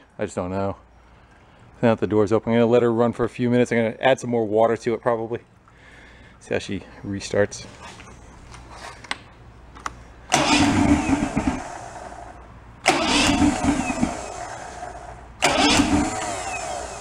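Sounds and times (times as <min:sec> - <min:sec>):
outboard motor cranking: 0:10.3 - 0:17.0.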